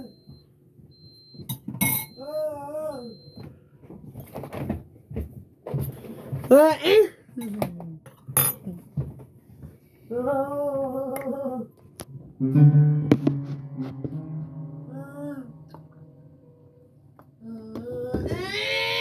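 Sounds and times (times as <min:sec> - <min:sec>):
person wailing: 0:14.6 - 0:16.2.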